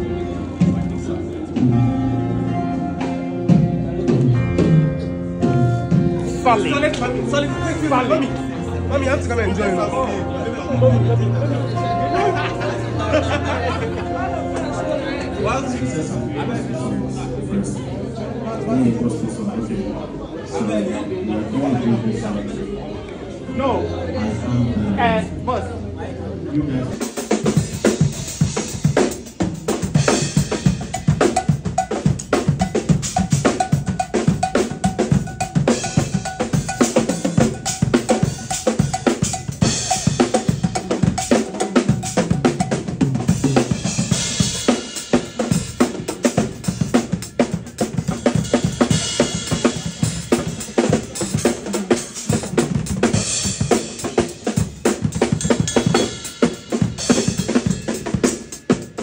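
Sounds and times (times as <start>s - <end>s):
fast drum kit solo: 27.0s - 59.0s.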